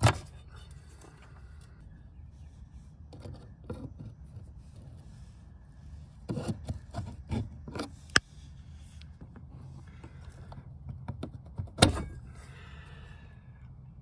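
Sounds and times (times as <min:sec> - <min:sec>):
plastic rubbing and scraping: 0:02.7 - 0:11.8.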